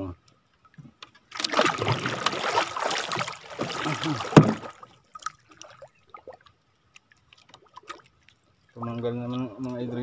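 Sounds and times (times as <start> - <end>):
paddle knocking canoe: 0.8 - 8.1
paddle splashing water: 1.2 - 9.0.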